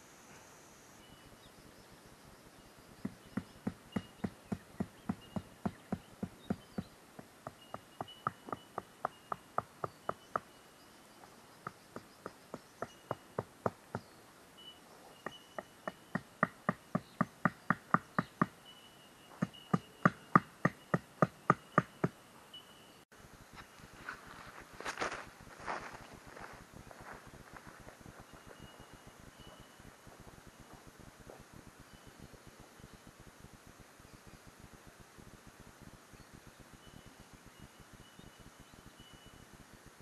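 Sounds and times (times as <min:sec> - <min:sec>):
tent stake being hammered: 0:03.0 - 0:10.5, 0:15.3 - 0:18.6, 0:19.4 - 0:22.1.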